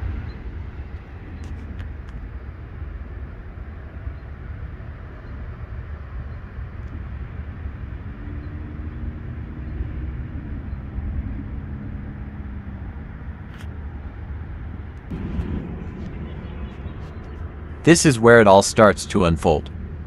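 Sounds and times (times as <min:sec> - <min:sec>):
wind rumbling on microphone: 0:00.0 - 0:19.0
low steady hum: 0:12.8 - 0:20.0.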